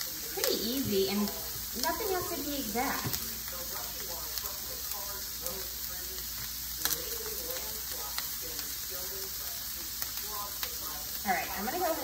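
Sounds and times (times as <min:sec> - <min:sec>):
vegetables sizzling in a pan: 0:00.0 - 0:12.0.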